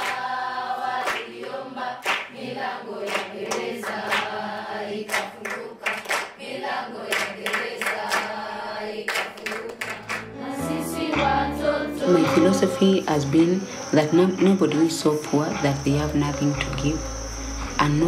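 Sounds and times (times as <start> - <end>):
hands clapping: 0.0 - 0.3, 1.0 - 6.4, 7.0 - 8.4, 9.0 - 10.3
children singing in chorus: 0.0 - 14.8.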